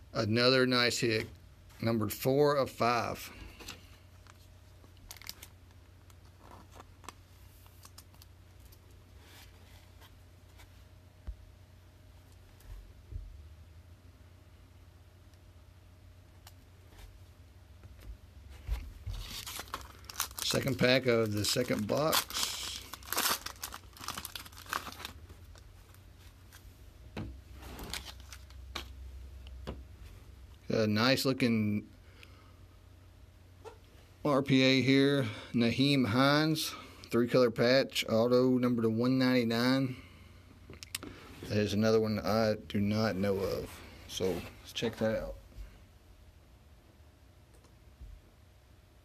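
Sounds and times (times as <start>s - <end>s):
steady low hum: 0.0s - 49.0s
foil card pack crinkling: 4.2s - 8.3s, 19.1s - 26.6s, 27.7s - 28.9s.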